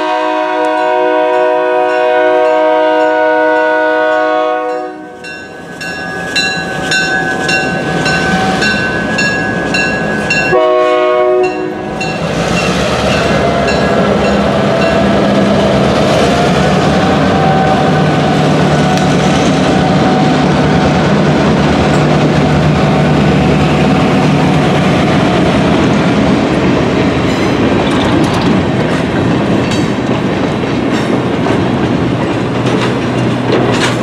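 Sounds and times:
locomotive air horn: 0.0s - 5.2s, 10.5s - 12.0s, 17.0s - 19.0s
bell ringing rapidly: 5.2s - 10.6s.

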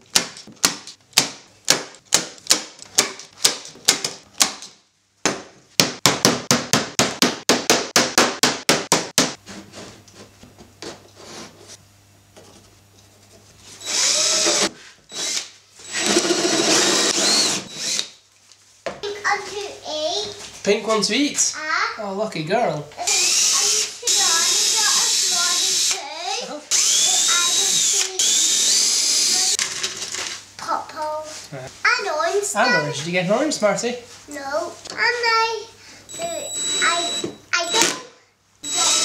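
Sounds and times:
drill boring into wood: 13.8s - 18.2s, 23.0s - 26.0s, 26.7s - 29.6s, 36.1s - 38.0s, 38.6s - 39.0s.

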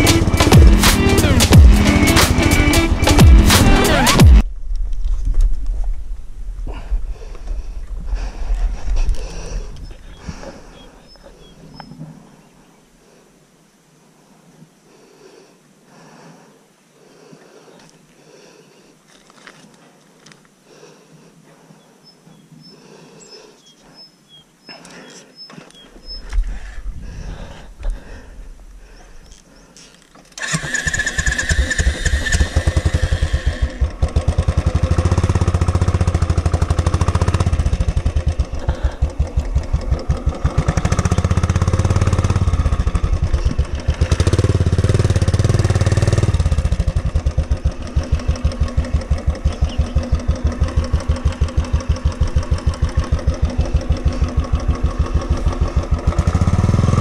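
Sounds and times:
motorcycle engine running: 0.0s - 4.4s, 30.4s - 57.0s.

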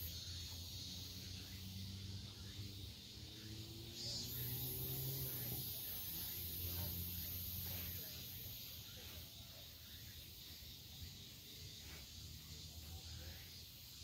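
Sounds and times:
steady low hum: 0.0s - 13.4s
hissing insect buzz: 0.0s - 14.0s.

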